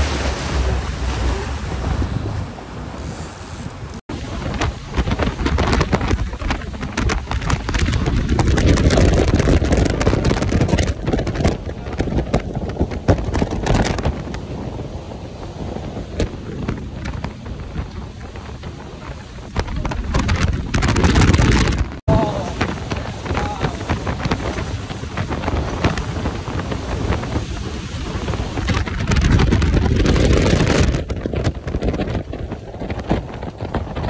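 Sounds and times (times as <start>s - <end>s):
wind buffeting microphone: 0.0s - 34.0s.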